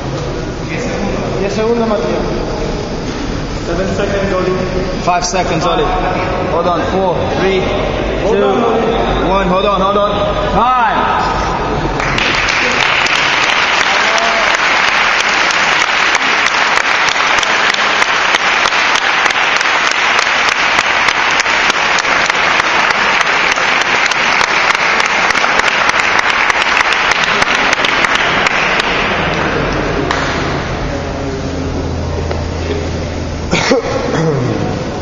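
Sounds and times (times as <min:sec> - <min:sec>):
spectators applauding: 0:11.9 - 0:30.7.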